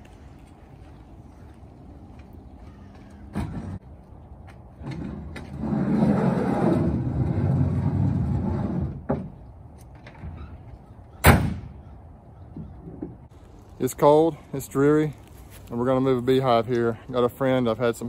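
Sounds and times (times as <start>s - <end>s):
metal hand truck scraping and rattling: 4.8s - 9.3s
tailgate slamming shut: 11.2s - 11.7s.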